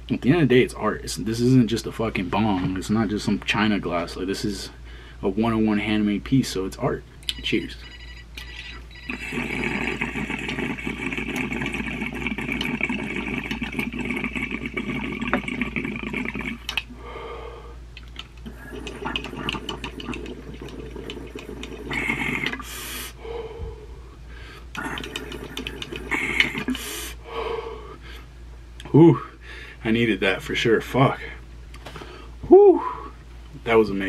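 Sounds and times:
water bubbling in glass pipe: 0:09.1 - 0:16.9, 0:18.4 - 0:22.9, 0:24.8 - 0:26.8
person breathing out: 0:16.9 - 0:17.8, 0:21.9 - 0:28.3.

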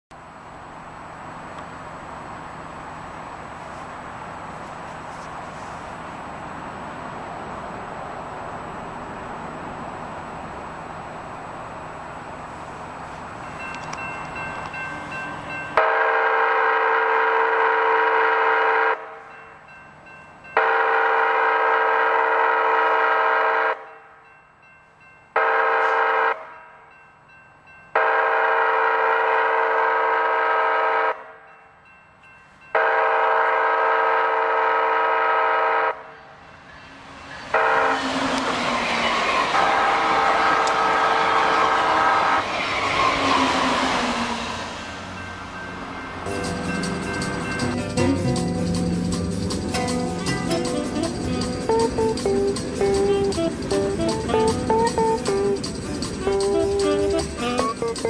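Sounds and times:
train passing with wheel noise: 0:00.1 - 0:58.0
locomotive air horn: 0:15.8 - 0:19.3, 0:20.6 - 0:24.0, 0:25.4 - 0:26.6, 0:28.0 - 0:31.4, 0:32.7 - 0:36.4, 0:37.5 - 0:44.1, 0:50.4 - 0:55.6, 0:56.2 - 0:58.0.

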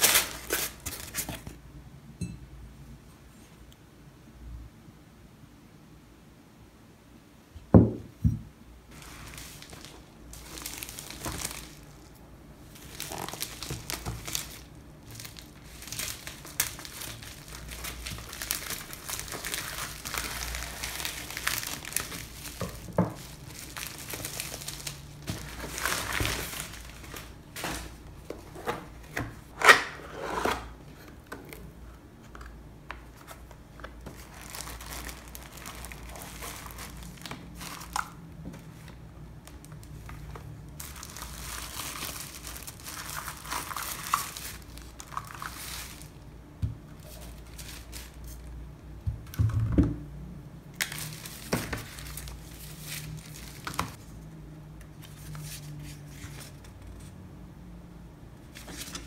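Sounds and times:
plastic packaging crinkling: 0:00.0 - 0:01.5, 0:08.9 - 0:30.0, 0:33.1 - 0:46.3, 0:46.9 - 0:48.6, 0:50.8 - 0:54.0.

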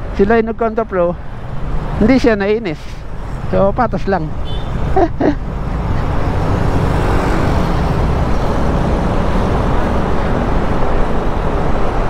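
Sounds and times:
wind rush on microphone: 0:04.8 - 0:12.0.

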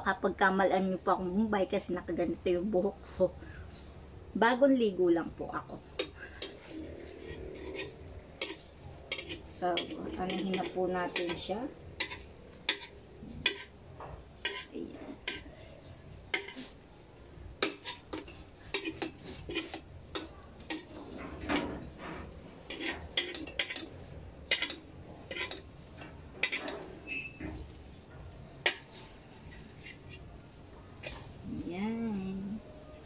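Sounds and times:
metal spatula scraping frying pan: 0:05.9 - 0:15.6, 0:16.3 - 0:16.9, 0:17.6 - 0:28.0, 0:28.6 - 0:30.2.

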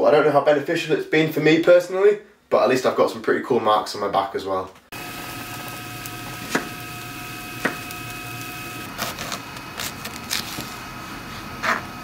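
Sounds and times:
faint steady whine: 0:04.9 - 0:12.0
steady cooking hiss: 0:04.9 - 0:12.0.

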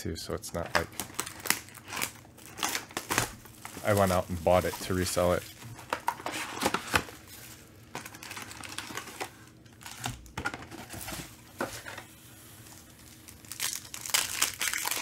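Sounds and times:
card packs clicking and rustling: 0:00.5 - 0:12.1
wrapper crinkling: 0:00.6 - 0:15.0.

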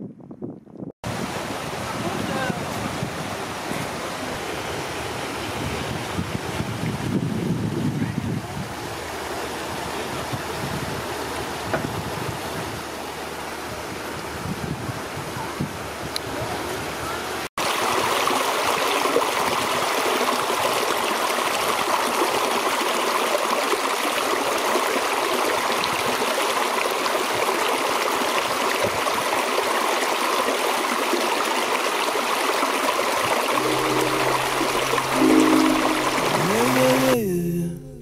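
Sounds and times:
river running over rocks: 0:01.1 - 0:06.6
music: 0:33.6 - 0:38.0.

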